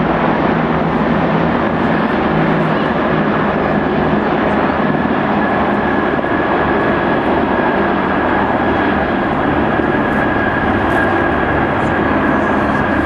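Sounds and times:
helicopters flying over: 0:00.0 - 0:13.0.

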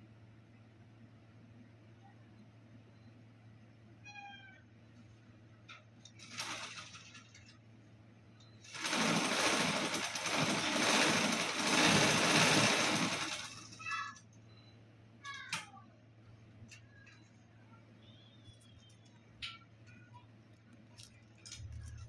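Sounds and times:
kitten meowing: 0:04.1 - 0:04.6.

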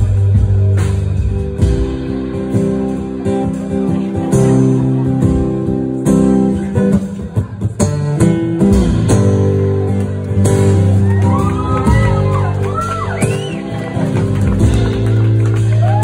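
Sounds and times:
country-pop song with acoustic guitar: 0:00.0 - 0:16.0
person whooping: 0:11.0 - 0:14.2, 0:15.7 - 0:16.0.

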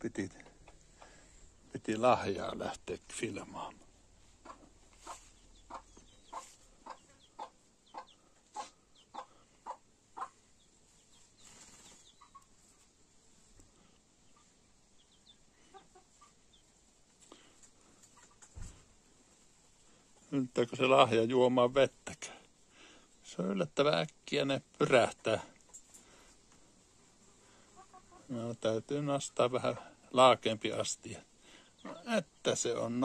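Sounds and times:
chicken clucking: 0:00.2 - 0:01.3, 0:03.6 - 0:13.0, 0:13.8 - 0:17.0, 0:17.6 - 0:18.7, 0:27.5 - 0:28.4, 0:31.8 - 0:32.3.

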